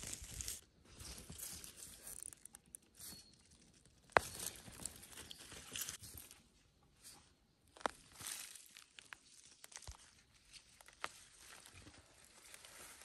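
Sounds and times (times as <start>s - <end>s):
leaves rustling: 0.0s - 2.5s, 7.8s - 13.0s
earth crumbling and tearing: 0.0s - 6.4s.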